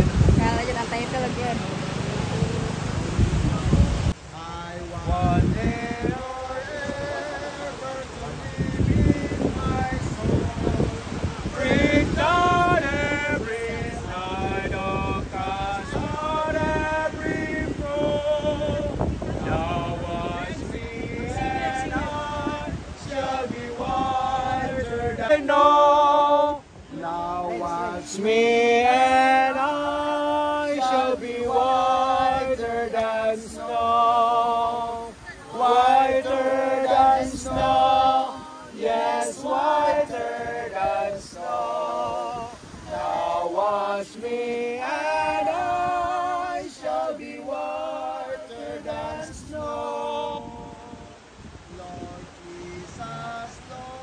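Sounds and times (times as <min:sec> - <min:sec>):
congregation singing a hymn: 0:00.0 - 0:54.0.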